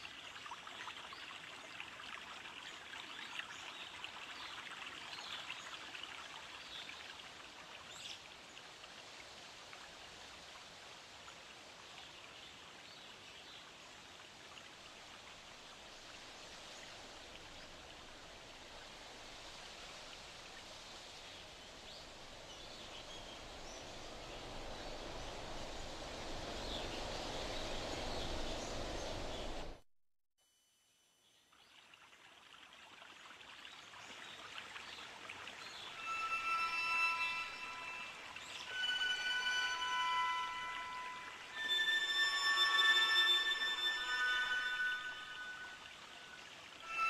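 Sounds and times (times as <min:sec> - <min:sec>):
rushing ambient hiss: 0:14.9 - 0:29.8, 0:35.6 - 0:47.0.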